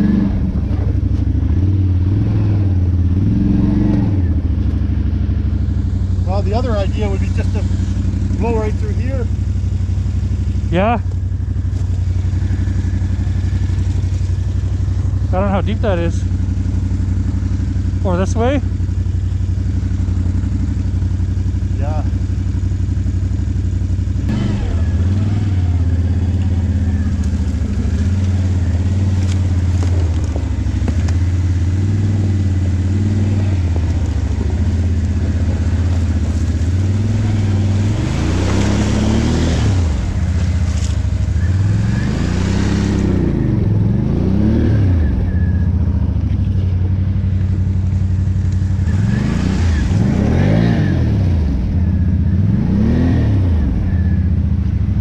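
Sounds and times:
quad engine revving: 0.0s - 55.0s
splashing through water and mud: 13.3s - 14.9s.

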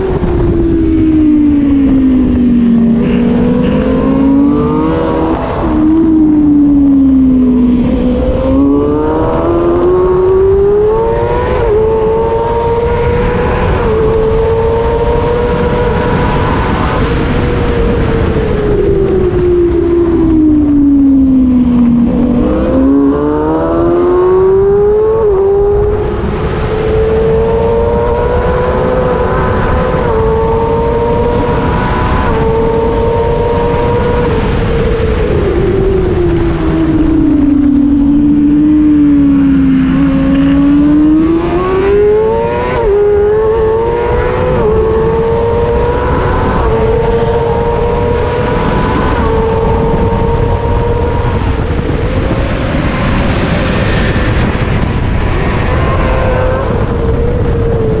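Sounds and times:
motorcycle engine revving high: 0.0s - 58.0s
steady rush of noise: 0.0s - 58.0s.

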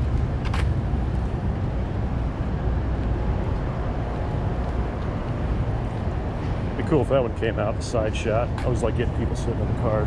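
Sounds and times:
city traffic rumble: 0.0s - 10.0s.

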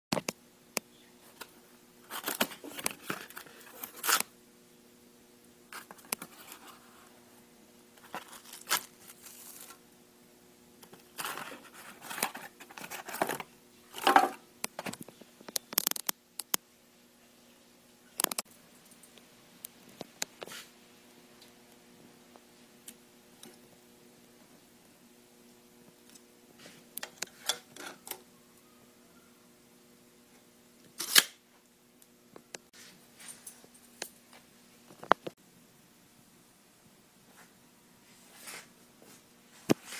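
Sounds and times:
faint steady hum: 0.2s - 39.9s
cardboard tearing and rustling: 2.1s - 4.2s, 8.0s - 9.8s, 11.2s - 13.4s.

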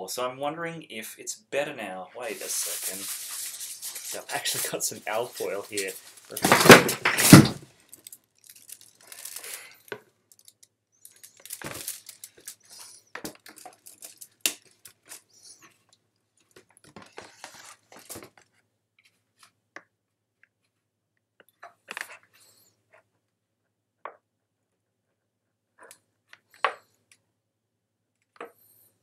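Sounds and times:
aluminium foil crinkling: 2.3s - 15.6s.

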